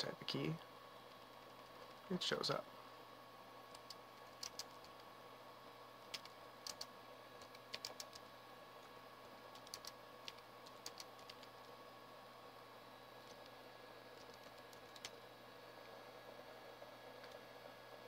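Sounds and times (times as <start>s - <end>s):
keyboard key clicks: 3.8s - 4.9s, 6.1s - 8.3s.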